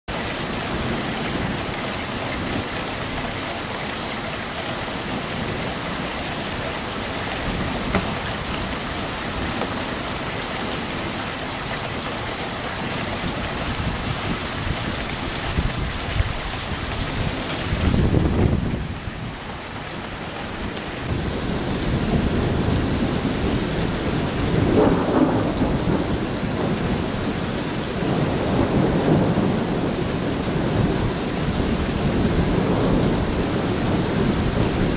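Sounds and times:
heavy rain on road: 0:00.1 - 0:34.9
thunder rumbling: 0:05.0 - 0:11.1, 0:12.8 - 0:19.4, 0:21.0 - 0:34.9.

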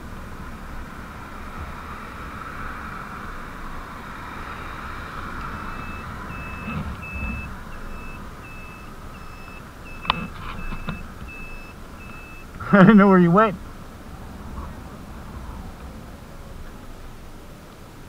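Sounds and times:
riding noise hiss: 0:00.0 - 0:18.0
turn-signal buzzer beeping: 0:05.6 - 0:12.5.

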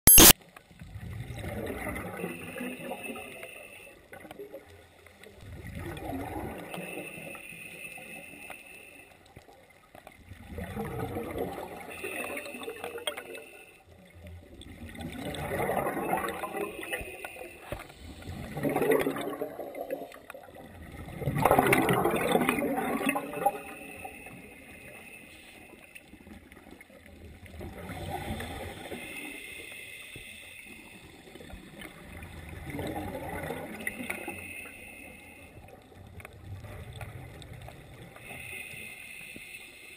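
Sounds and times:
exhaled bubbles gurgling: 0:00.8 - 0:08.3, 0:09.7 - 0:29.7, 0:30.6 - 0:38.8
diver breathing through regulator: 0:38.2 - 0:39.9.

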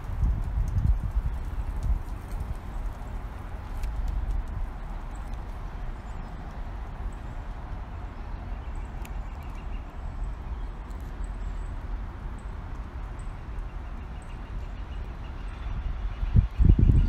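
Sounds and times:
wind buffeting microphone: 0:00.0 - 0:09.0, 0:15.0 - 0:17.0.

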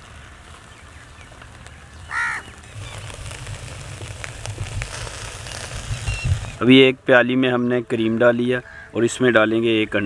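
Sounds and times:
skewers sizzling on charcoal: 0:00.0 - 0:07.5
crow cawing: 0:02.1 - 0:02.6.

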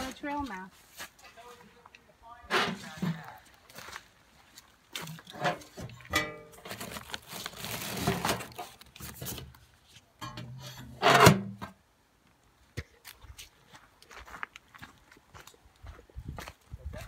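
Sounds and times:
paper rustling: 0:06.6 - 0:09.7.

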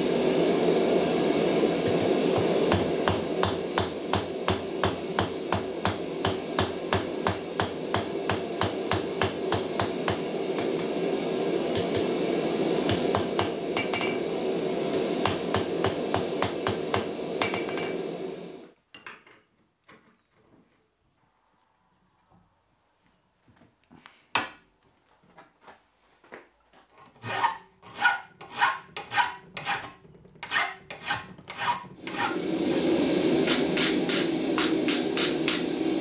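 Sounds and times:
hammer striking steel on anvil: 0:01.8 - 0:10.9, 0:11.7 - 0:12.2, 0:12.8 - 0:14.3, 0:14.9 - 0:18.1
steady rushing noise: 0:32.0 - 0:36.0.

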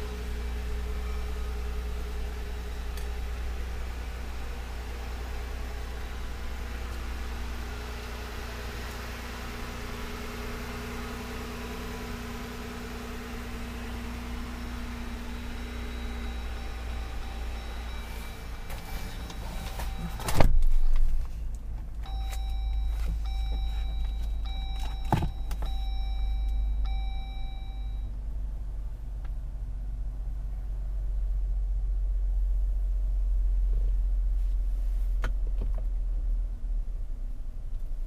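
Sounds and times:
steady low rumble: 0:10.8 - 0:38.0
car dashboard chime: 0:13.1 - 0:20.4, 0:22.0 - 0:28.1.

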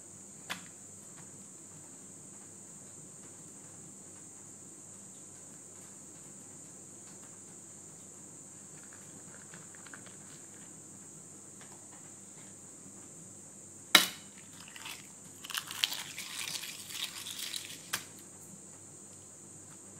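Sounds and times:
bread crackling: 0:08.5 - 0:12.1, 0:14.0 - 0:18.4
sharp knock: 0:14.0 - 0:14.3.

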